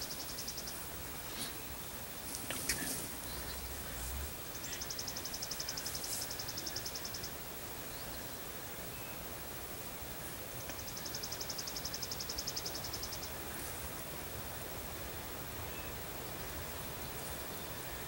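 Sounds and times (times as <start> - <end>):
songbird trill: 0.0 - 9.5, 10.5 - 13.8, 15.5 - 18.0
outdoor hiss: 0.0 - 18.0.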